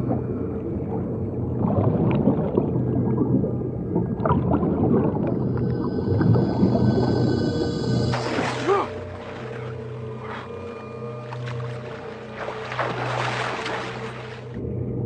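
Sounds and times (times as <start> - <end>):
underwater bubbles gurgling: 0.0 - 10.6
low steady hum: 0.0 - 15.0.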